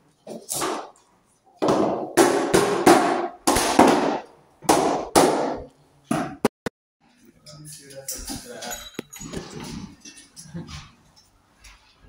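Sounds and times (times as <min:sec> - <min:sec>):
loud bangs in an empty room: 0:01.6 - 0:06.4.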